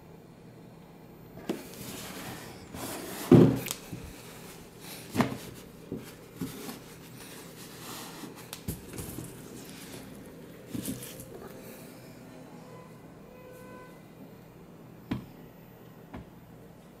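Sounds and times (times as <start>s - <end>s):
cardboard box knocks and scrapes: 2.8s - 3.6s.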